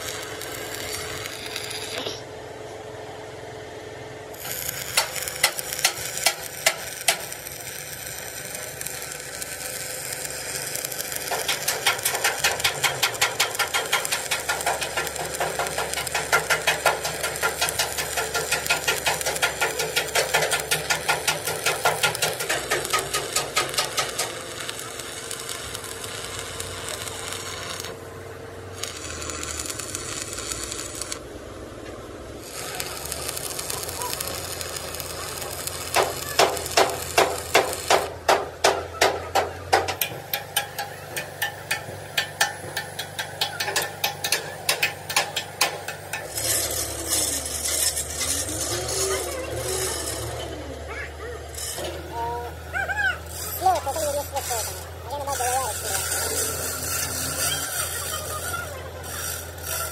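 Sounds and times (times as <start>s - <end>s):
machine noise: 0.0s - 59.9s
hammering metal: 4.4s - 10.0s, 10.6s - 26.2s, 33.0s - 50.5s.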